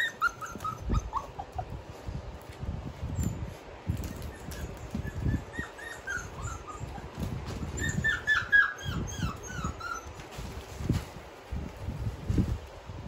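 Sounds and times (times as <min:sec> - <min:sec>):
puppies whimpering and yipping: 0:00.0 - 0:01.9, 0:03.9 - 0:10.6.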